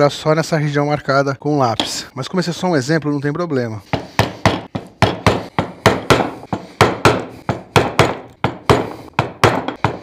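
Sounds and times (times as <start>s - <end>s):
mallet striking wood chisel: 3.9s - 10.0s.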